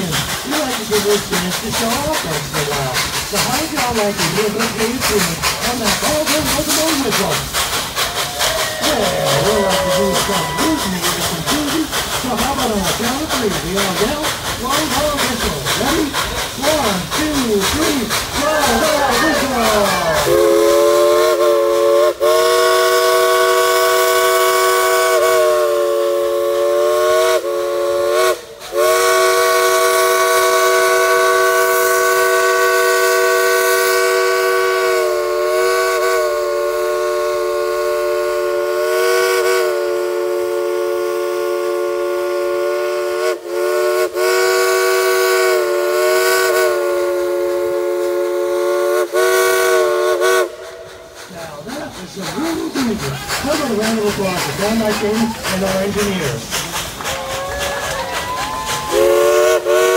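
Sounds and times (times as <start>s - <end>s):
steam locomotive chime whistle: 57.4s - 59.9s.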